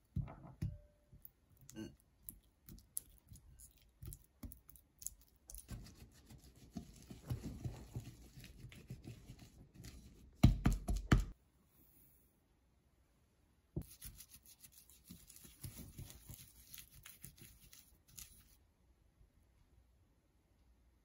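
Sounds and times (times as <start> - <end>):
whisk scraping and squishing butter: 5.4 - 10.2, 13.8 - 18.6.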